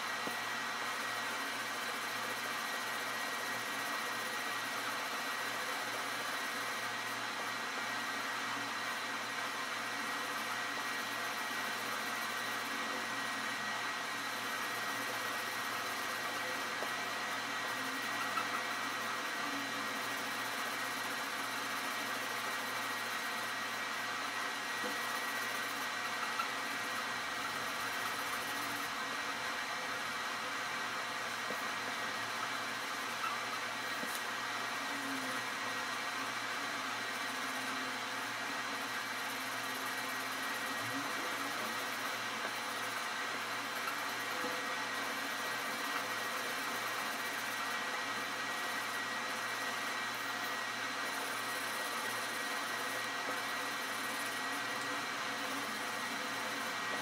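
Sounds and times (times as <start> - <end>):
faint high whine: 0.0 - 57.0
machine hiss and hum: 0.0 - 57.0.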